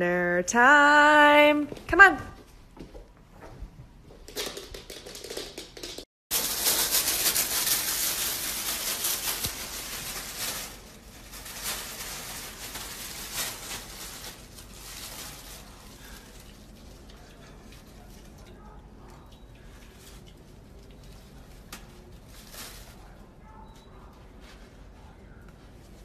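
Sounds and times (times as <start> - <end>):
paper towel rustling and tearing: 6.3 - 18.4, 19.9 - 23.3.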